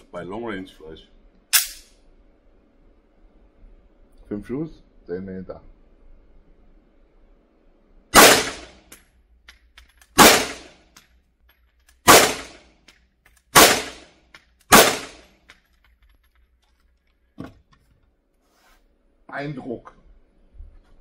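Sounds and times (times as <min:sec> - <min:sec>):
pistol shots indoors: 0:01.5 - 0:02.0, 0:08.1 - 0:09.1, 0:10.0 - 0:11.1, 0:12.0 - 0:15.5.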